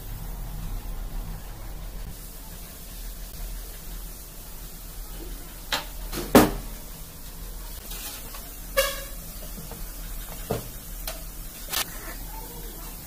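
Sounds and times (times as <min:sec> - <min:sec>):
vehicle horn toot: 0:08.7 - 0:09.3.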